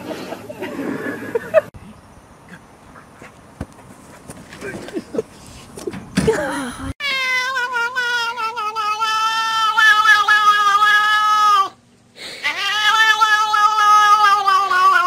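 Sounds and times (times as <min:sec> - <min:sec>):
cat yowling: 0:07.0 - 0:11.8, 0:12.4 - 0:15.0.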